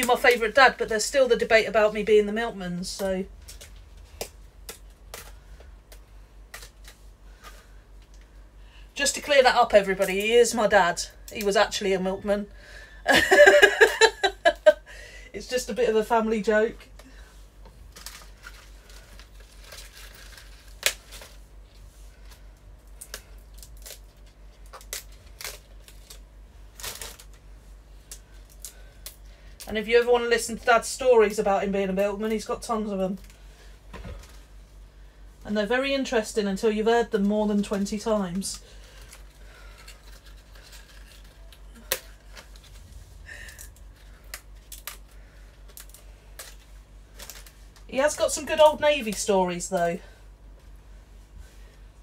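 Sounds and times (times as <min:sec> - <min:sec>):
leaves rustling and tearing: 0:17.8 - 0:29.6, 0:37.8 - 0:49.8
leaves ripping and rustling: 0:17.9 - 0:27.5
stalk snapping: 0:19.6 - 0:21.4.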